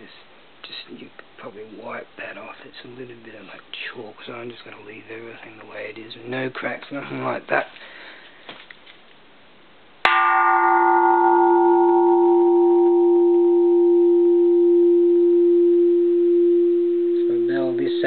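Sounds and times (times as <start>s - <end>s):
temple bell strike and ring: 10.1s - 18.0s.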